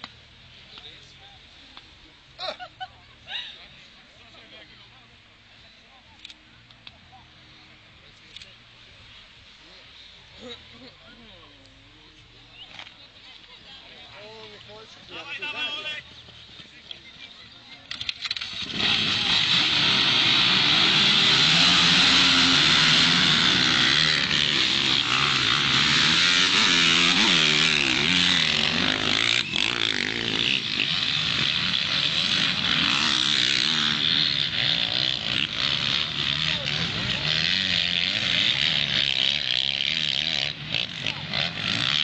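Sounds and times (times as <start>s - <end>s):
motocross engines revving: 13.8s - 42.0s.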